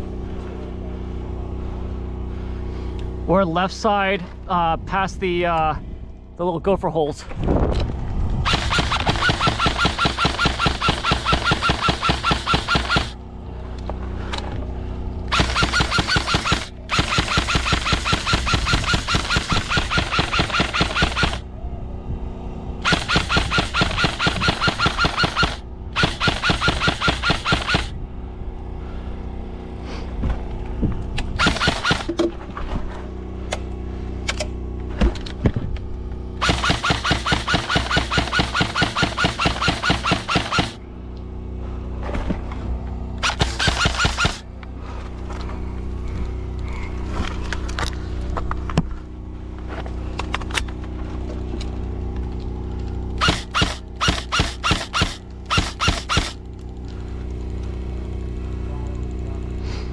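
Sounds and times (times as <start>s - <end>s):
gun motor whine: 7.9s - 21.6s, 22.8s - 28.0s, 30.6s - 32.3s, 35.8s - 41.1s, 42.5s - 58.6s
airsoft gun firing bursts: 8.4s - 13.2s, 15.3s - 21.4s, 22.8s - 27.9s, 31.3s - 32.2s, 36.4s - 40.8s, 43.2s - 44.5s, 53.2s - 56.4s.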